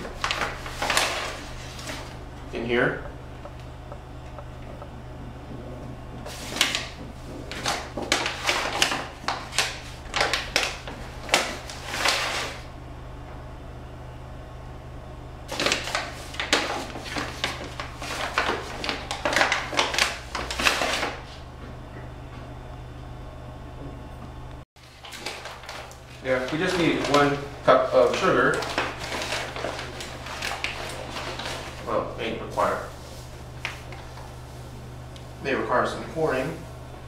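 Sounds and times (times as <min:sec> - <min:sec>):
flour scooping rustling and scraping: 0:06.2 - 0:07.6.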